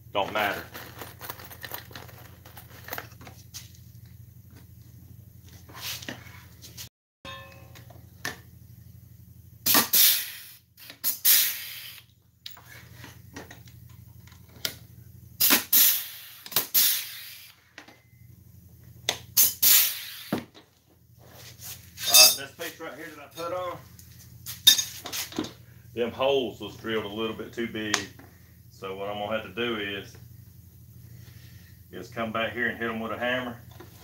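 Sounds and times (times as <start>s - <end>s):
pneumatic rivet gun hissing bursts: 9.7s - 12.1s, 15.4s - 17.6s, 19.4s - 20.4s
metallic clinks: 22.0s - 22.5s.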